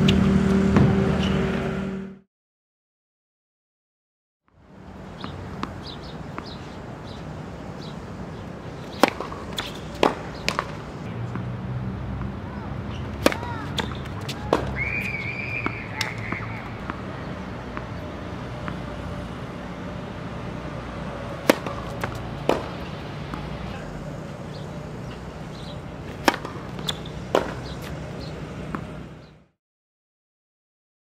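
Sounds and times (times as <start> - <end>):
low outdoor hum: 4.5 - 29.5
tennis ball bouncing: 5.0 - 11.5, 12.1 - 29.3
racket striking tennis ball: 5.2 - 6.6, 7.8 - 11.5, 12.9 - 23.9, 24.5 - 29.2.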